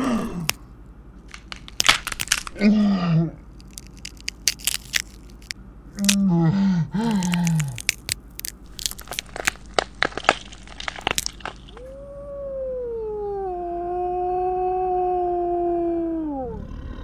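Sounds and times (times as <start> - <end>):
growl: 0.0 - 0.5, 2.6 - 3.4, 13.4 - 17.0
bone-like cracks and snaps: 0.0 - 0.6, 1.3 - 2.6, 3.5 - 6.2, 7.0 - 11.8
long howl: 11.8 - 17.0.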